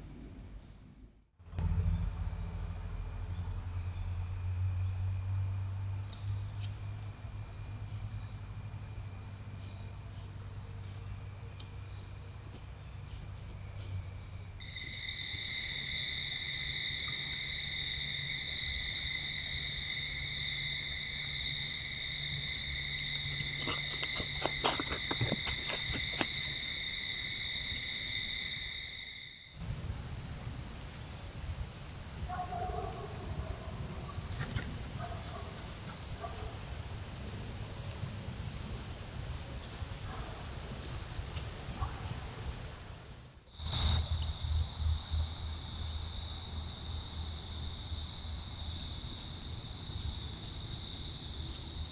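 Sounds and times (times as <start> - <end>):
single-pitched insect trill: 1.5 - 32.4
crickets and insects chirring: 1.5 - 51.9.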